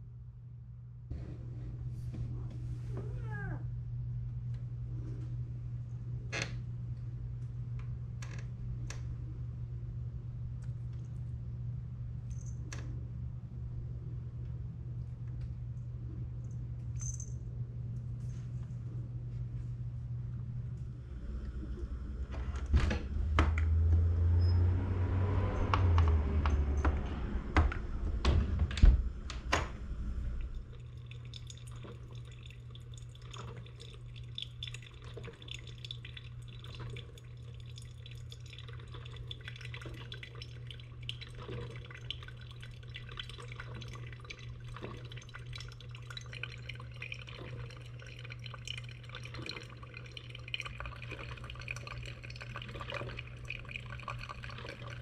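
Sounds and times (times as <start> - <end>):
steady low hum: 0.0 - 55.0
low rumble: 13.0 - 31.4
small clinks: 16.5 - 17.5
water dripping: 30.4 - 55.0.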